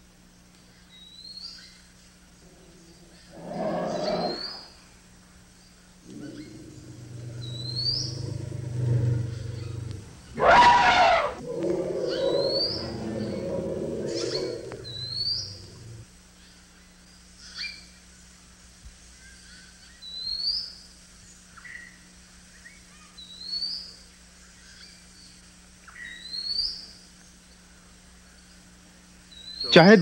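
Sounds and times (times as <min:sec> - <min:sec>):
elephant low rumbling: 0:06.0 - 0:16.0
bird chirping: 0:06.1 - 0:16.0
elephant trumpeting: 0:06.1 - 0:16.0.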